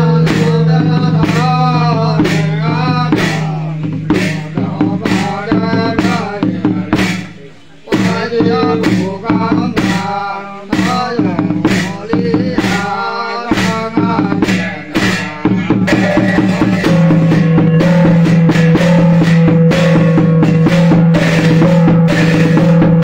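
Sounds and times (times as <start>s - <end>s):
drum and percussion strikes: 0.0s - 23.0s
steady held note: 0.0s - 23.0s.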